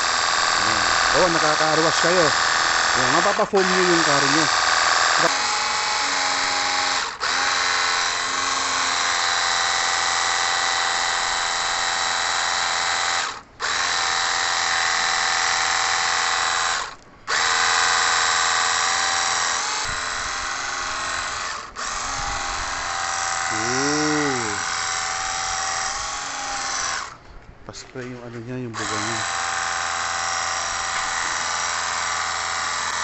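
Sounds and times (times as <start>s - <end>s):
water jet hissing on concrete: 0.0s - 5.4s
pressure washer motor whine: 0.0s - 27.2s, 28.8s - 33.0s.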